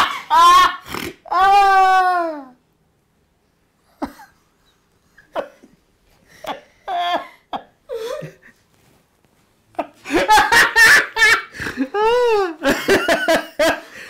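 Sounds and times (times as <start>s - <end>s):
people giggling and laughing: 9.8s - 13.9s.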